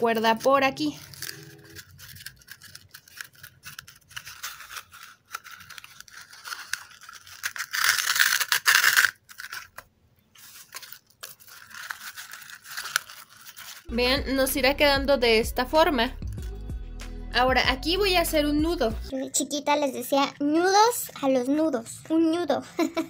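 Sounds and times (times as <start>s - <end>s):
cord scratching on cardboard: 0.2s - 9.8s.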